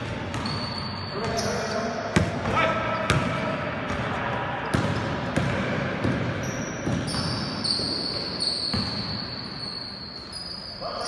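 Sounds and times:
basketball bouncing on court: 0:00.0 - 0:09.3
high squeaking tones: 0:06.4 - 0:11.0.

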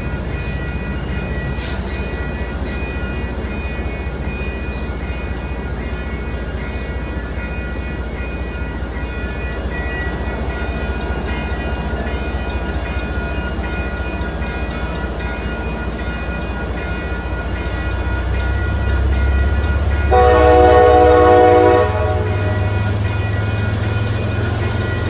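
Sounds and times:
train coaches rumbling past: 0:00.0 - 0:25.0
train horn chord: 0:20.1 - 0:22.9.

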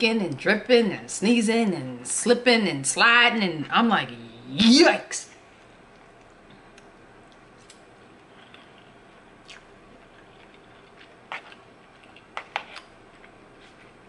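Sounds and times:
wet chewing mouth sounds: 0:08.2 - 0:12.3.

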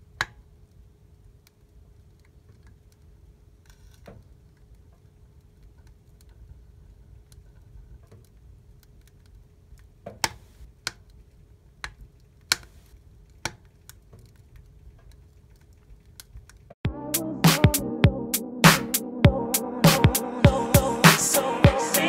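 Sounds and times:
wood fire crackling and popping: 0:00.2 - 0:16.8.

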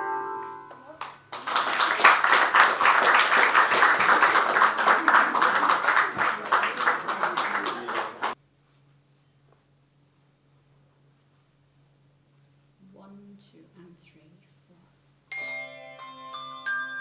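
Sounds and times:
audience clapping: 0:01.0 - 0:08.4.

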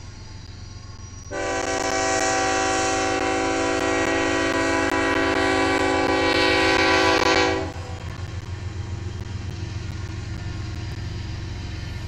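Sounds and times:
low rumble of passing locomotives: 0:00.0 - 0:12.0
locomotive horn blast: 0:01.3 - 0:08.0.

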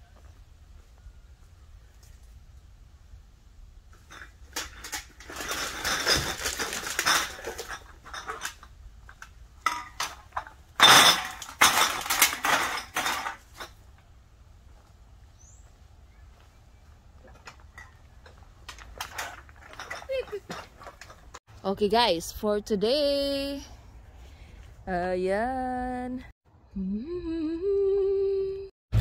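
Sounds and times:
bottles and cans clinking: 0:04.0 - 0:13.8, 0:17.3 - 0:21.4.

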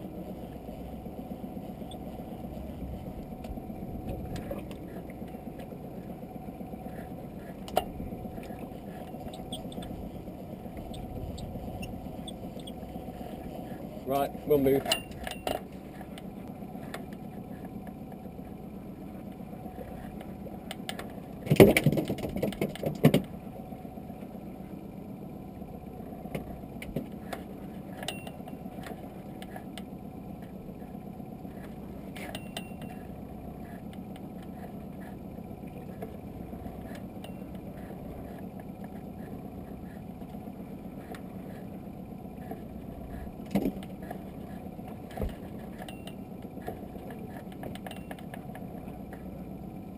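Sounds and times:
outboard motor idling: 0:00.0 - 0:49.9
loud knocks and rattles: 0:21.5 - 0:23.2.

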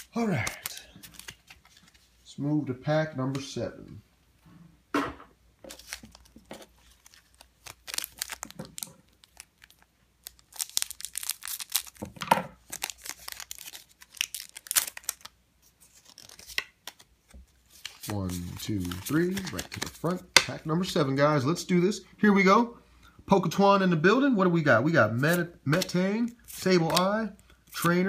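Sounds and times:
foil wrapper crinkling: 0:05.8 - 0:17.0.

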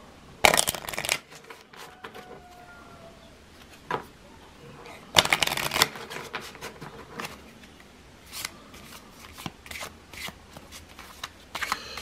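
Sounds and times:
cards shuffled by hand: 0:00.4 - 0:02.2, 0:05.1 - 0:12.0.

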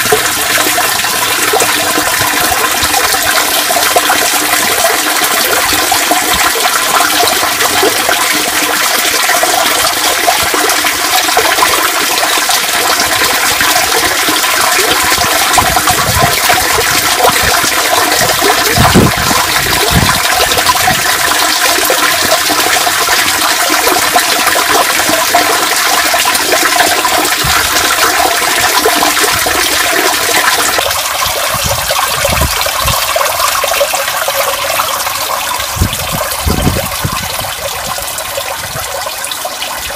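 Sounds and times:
water rushing into street drain: 0:00.0 - 0:39.9.

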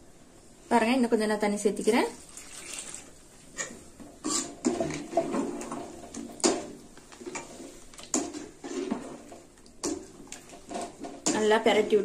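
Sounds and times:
water pouring into metal pot: 0:02.2 - 0:03.2.

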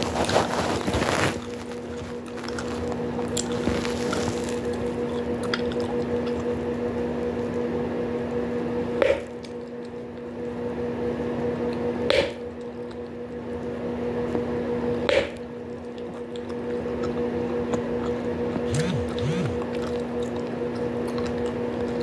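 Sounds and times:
gum chewing with wet squishing: 0:00.0 - 0:07.6, 0:09.0 - 0:10.3, 0:12.5 - 0:13.3, 0:15.2 - 0:22.0
steady low hum: 0:00.0 - 0:22.0.

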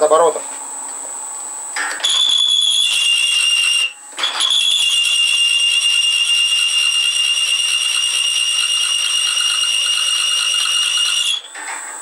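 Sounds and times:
drill screeching into steel: 0:02.0 - 0:05.2.

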